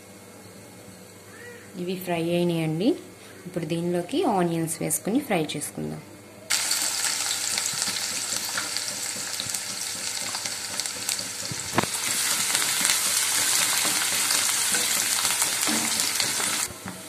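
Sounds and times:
onions sizzling in hot oil: 6.5s - 17.0s
spatula stirring: 7.5s - 16.7s.

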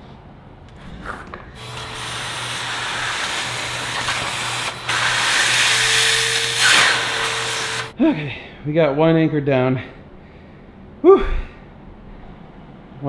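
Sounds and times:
shop vacuum running: 0.8s - 8.0s.

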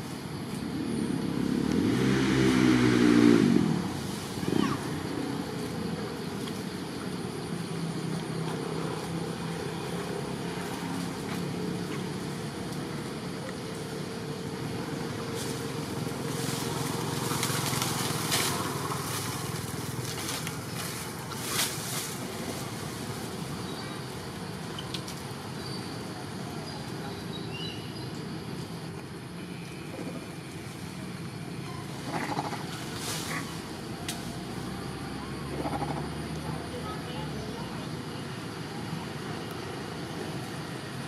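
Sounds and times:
short crackles and rustles: 15.3s - 23.3s.

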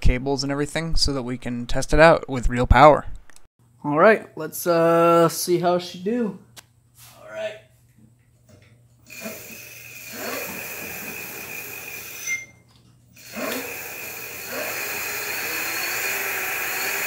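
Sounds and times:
electric hub motor whining: 9.1s - 12.5s, 13.2s - 17.0s
disc brake squeak: 12.2s - 12.6s.

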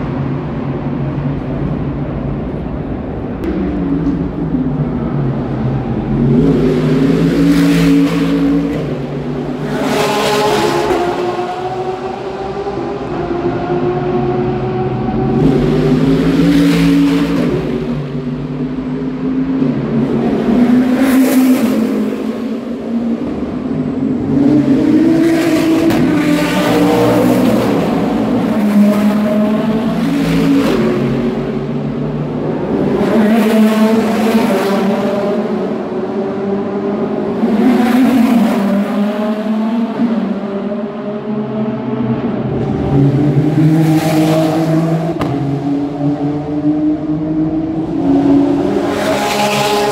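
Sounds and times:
race cars passing: 0.0s - 49.9s.

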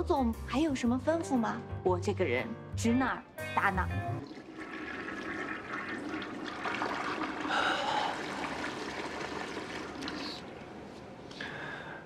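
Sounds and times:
water trickling in toilet: 4.2s - 10.6s
man breathing heavily: 7.5s - 8.3s, 11.3s - 12.0s.

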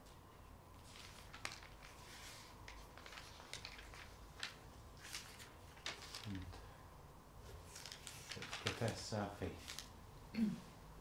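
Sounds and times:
book pages turning: 0.8s - 6.7s, 7.4s - 9.9s.

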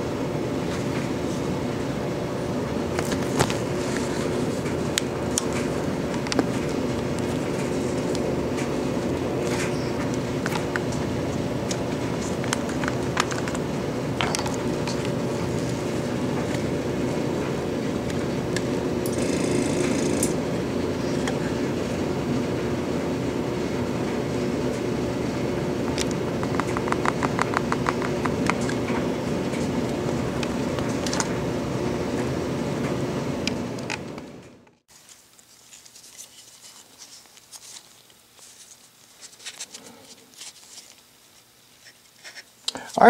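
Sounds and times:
machine humming: 0.0s - 34.8s
sharp clicks and taps: 26.0s - 28.7s.

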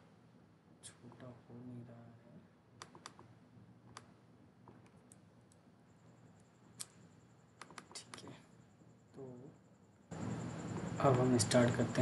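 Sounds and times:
low steady hum: 0.0s - 12.0s
computer mouse clicks: 2.8s - 3.3s, 3.9s - 5.6s, 7.6s - 8.3s.

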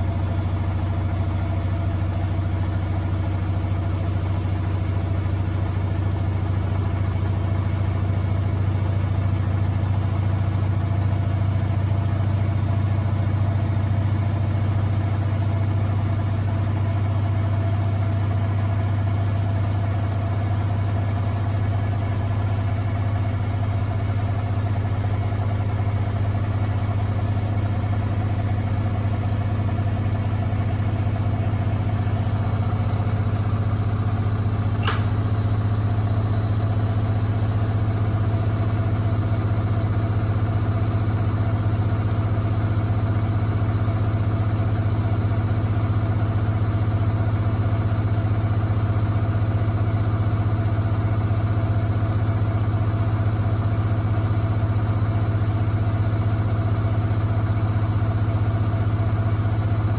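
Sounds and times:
drum twang: 34.8s - 35.2s
washing machine drum spinning: 34.8s - 35.3s.

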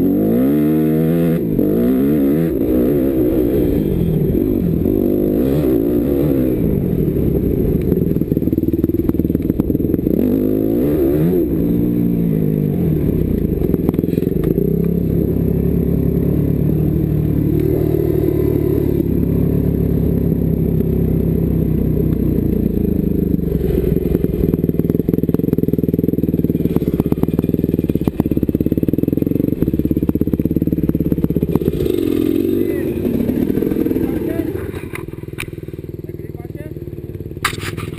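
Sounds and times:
motocross bike engine revving: 0.0s - 37.9s
bike rattles and knocks: 24.3s - 32.0s, 37.2s - 37.9s.

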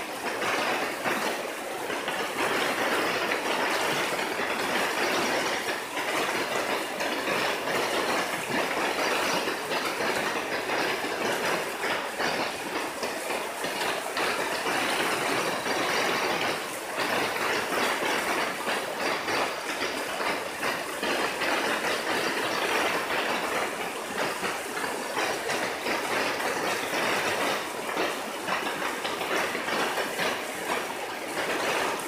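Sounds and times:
river water flowing over stones: 0.0s - 32.0s.

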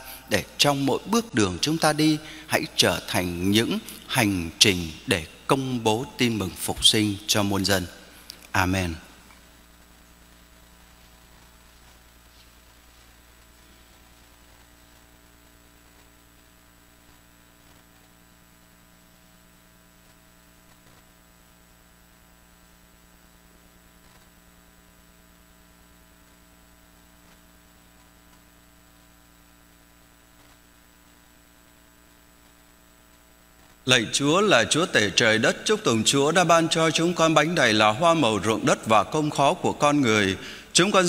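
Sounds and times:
electrical mains hum: 0.0s - 41.0s
faint ticks: 24.0s - 24.4s, 27.2s - 28.6s, 30.3s - 31.8s.

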